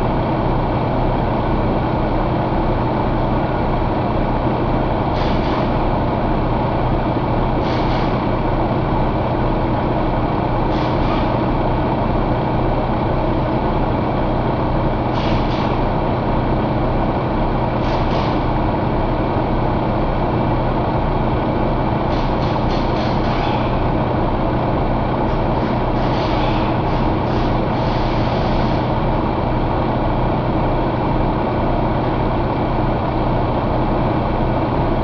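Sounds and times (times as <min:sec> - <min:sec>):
diesel engine idling: 0:00.0 - 0:35.0.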